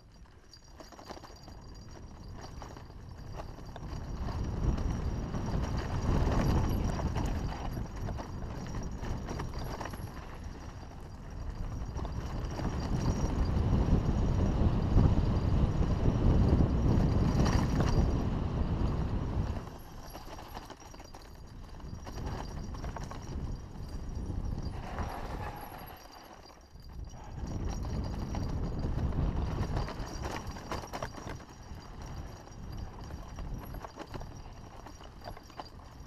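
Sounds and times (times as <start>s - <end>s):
wind on microphone: 1.5s - 36.0s
mountain bike clattering: 19.3s - 36.0s.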